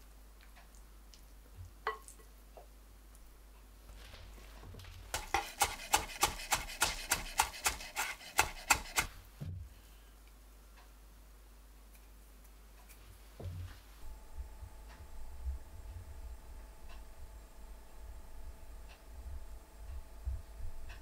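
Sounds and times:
knife chopping on wooden board: 5.1s - 9.2s.

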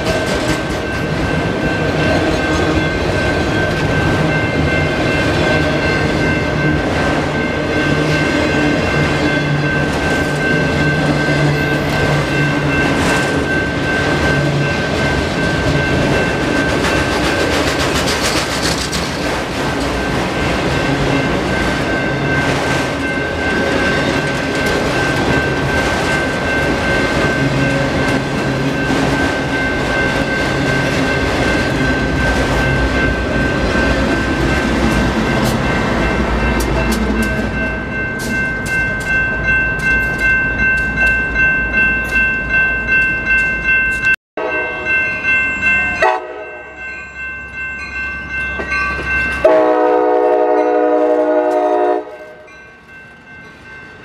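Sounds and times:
train wheels clattering and rumbling: 0.0s - 41.3s
crossing bell ringing: 0.0s - 54.0s
diesel locomotive passing: 0.0s - 54.0s.

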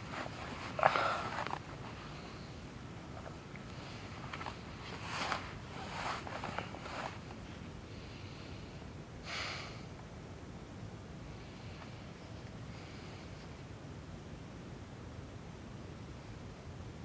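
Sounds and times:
rustling: 0.0s - 7.7s.

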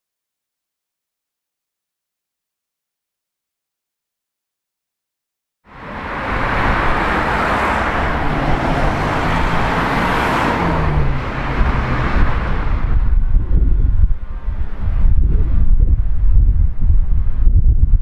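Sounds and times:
cars driving past: 5.7s - 16.2s.

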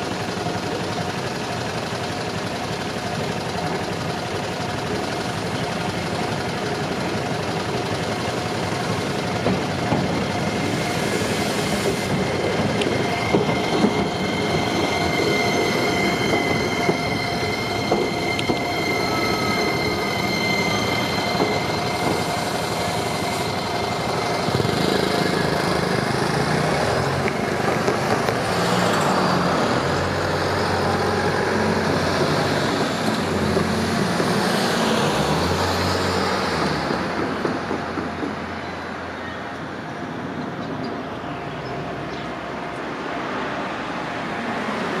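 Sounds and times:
road traffic: 0.0s - 45.0s
level crossing warning bell: 12.1s - 27.6s
motorcycle accelerating: 23.2s - 36.3s.

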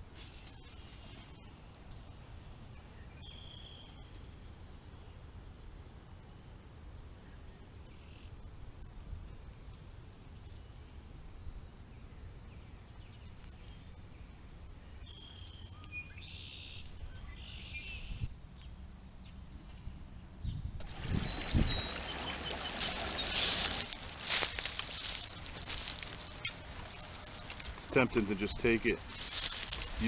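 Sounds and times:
birds calling and chirping: 15.0s - 19.6s, 21.0s - 30.0s.

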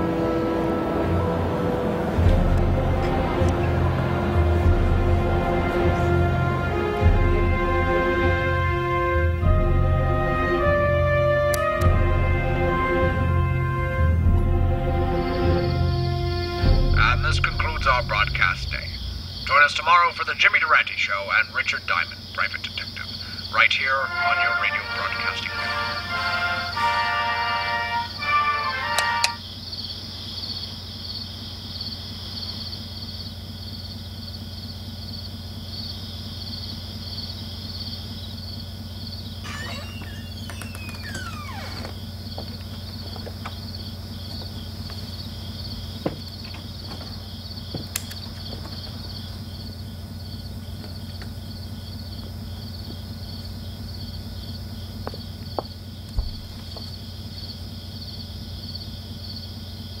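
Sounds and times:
low steady hum: 0.0s - 30.0s
crickets chirping: 0.0s - 60.0s.

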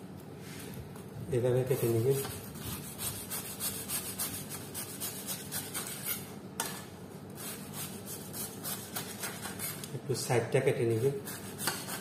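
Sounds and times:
knife sawing through bread crust: 1.7s - 6.3s, 7.4s - 9.9s, 11.0s - 12.0s.

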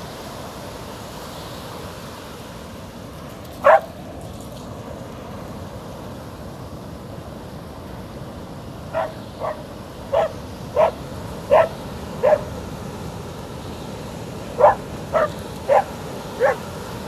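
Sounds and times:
surf washing on shore: 0.0s - 17.0s
dog barking: 3.6s - 4.0s, 8.9s - 12.5s, 14.6s - 16.7s.

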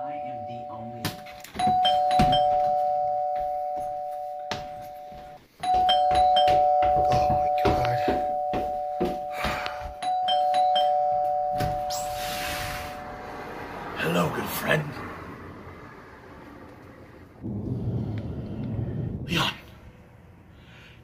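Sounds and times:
two-tone doorbell chime: 0.0s - 13.6s.

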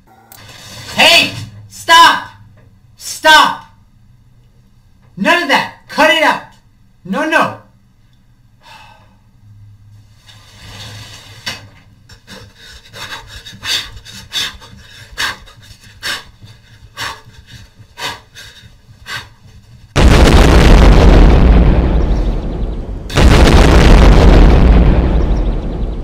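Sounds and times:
explosion sound effect: 20.0s - 26.0s
sharp hits: 20.0s - 26.0s.

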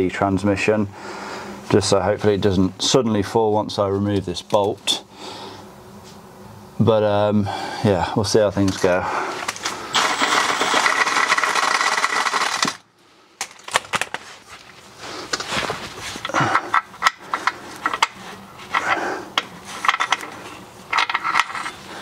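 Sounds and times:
cordless power wrench running: 9.5s - 12.9s.

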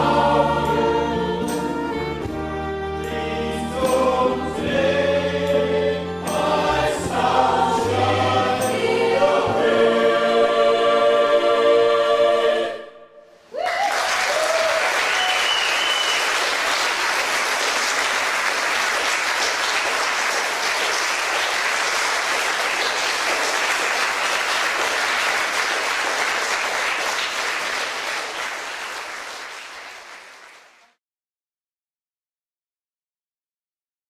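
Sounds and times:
audience applauding: 13.5s - 31.0s.

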